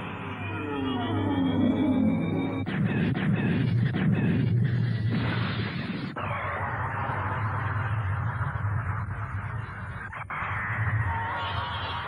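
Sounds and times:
eerie electronic gliding tones: 0.0 - 5.3.

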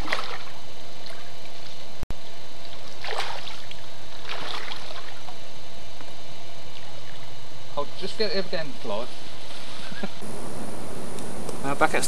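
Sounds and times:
water splashing: 0.0 - 1.6, 2.7 - 5.4
steady hiss: 8.9 - 12.0.

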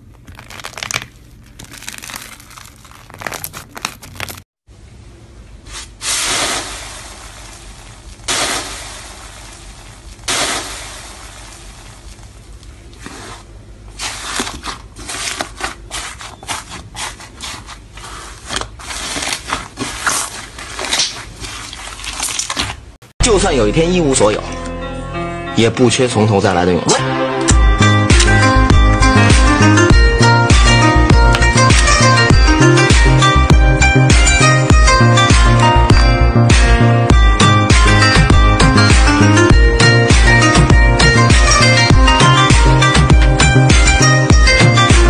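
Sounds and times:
hands squishing crackling slime: 0.1 - 4.4, 14.0 - 22.9.

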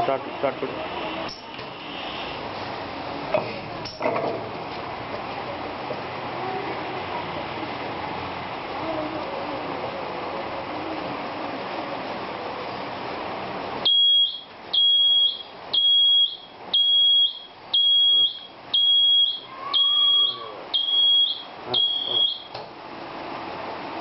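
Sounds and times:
steady background noise: 0.0 - 24.0
electronic alarm buzzer beeping: 13.8 - 22.5.

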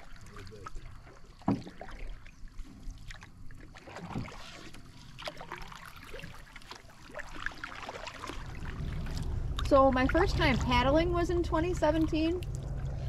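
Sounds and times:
paddles dipping in water: 0.0 - 13.0
water dripping: 5.2 - 13.0.

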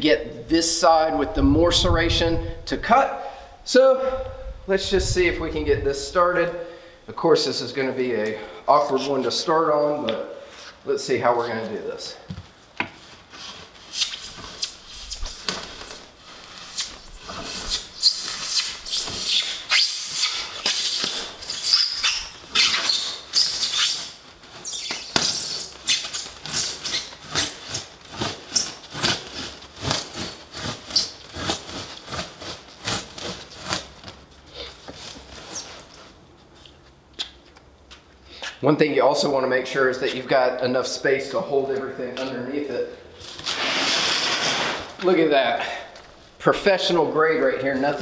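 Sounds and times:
knife sawing through foam board: 25.4 - 33.9.

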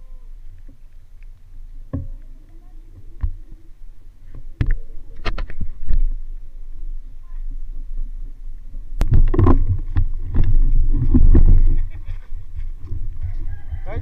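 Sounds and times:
camera handling rumble: 4.2 - 6.2.

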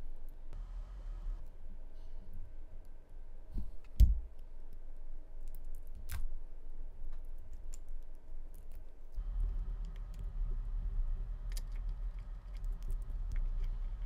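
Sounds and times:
handling noise rumble: 9.2 - 14.0.

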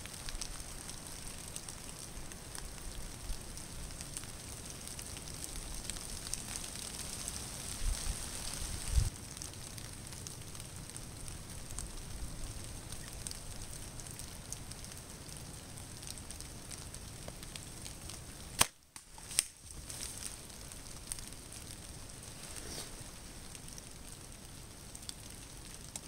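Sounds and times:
light rain pattering: 0.0 - 26.0
bow shot snap: 18.6 - 19.6.

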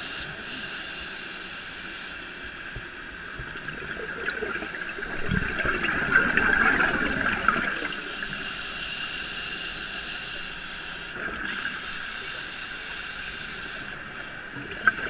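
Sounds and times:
steady hiss: 0.0 - 3.7, 7.8 - 15.0
underwater bubbles gurgling: 2.6 - 9.5, 13.3 - 15.0.

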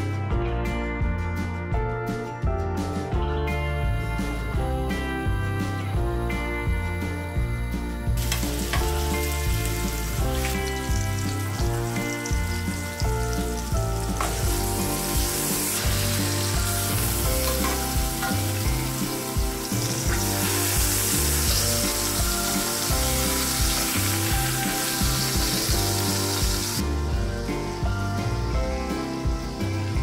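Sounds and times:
meat sizzling in oil: 8.1 - 30.0.

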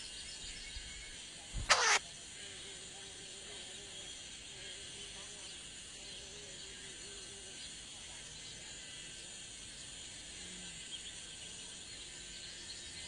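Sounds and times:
insect chirps: 0.0 - 13.0
insect chorus drone: 0.0 - 13.0.

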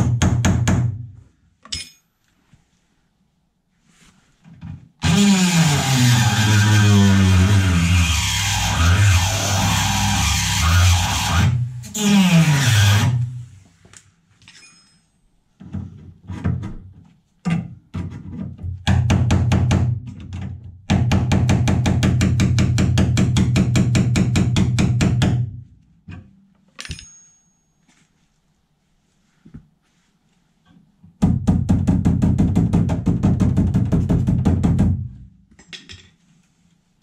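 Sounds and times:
high metallic ring: 14.5 - 15.4, 26.8 - 28.0.

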